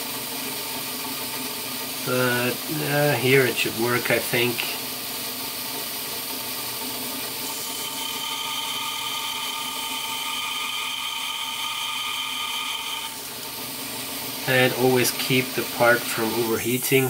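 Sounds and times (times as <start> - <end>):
thin whine: 7.1 - 13.4, 14.4 - 17.0
belt grinder hiss: 7.4 - 17.0.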